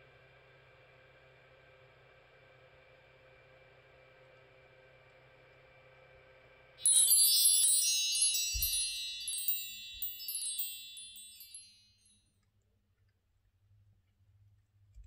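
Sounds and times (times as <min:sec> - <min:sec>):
high metal chimes ringing: 0:06.8 - 0:11.8.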